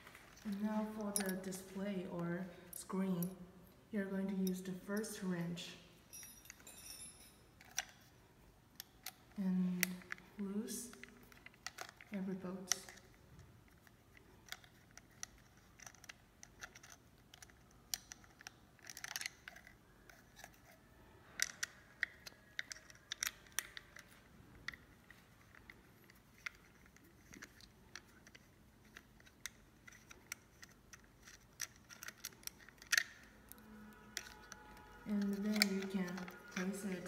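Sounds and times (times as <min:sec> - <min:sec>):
hex key clicking on screws: 0:13.8 - 0:37.0.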